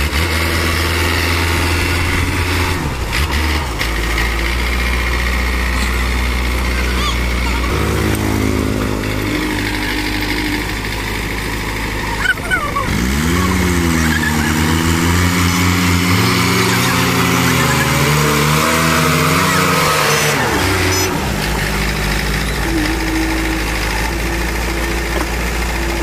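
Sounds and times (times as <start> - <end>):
diesel engines revving: 0.0 - 26.0.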